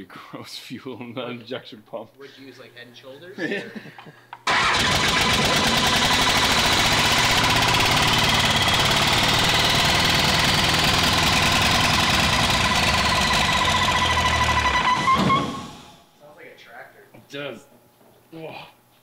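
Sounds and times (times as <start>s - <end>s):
diesel engine clatter: 4.5s - 15.9s.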